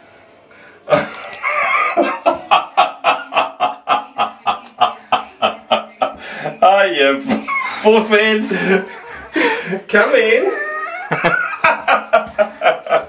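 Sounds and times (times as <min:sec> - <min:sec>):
man laughing hard: 0:00.9 - 0:06.2, 0:08.4 - 0:13.0.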